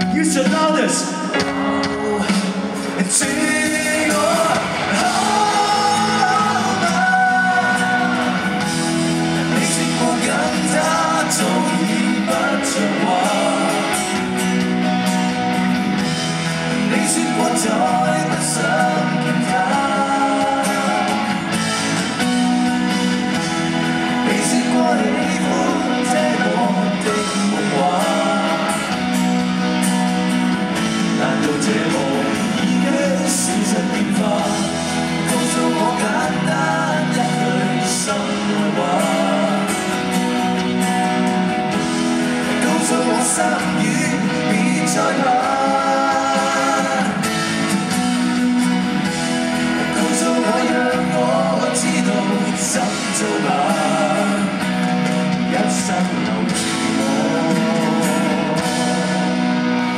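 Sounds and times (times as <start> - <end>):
drums: 0.0 - 59.9
electric guitar: 0.0 - 59.9
people singing: 1.5 - 59.9.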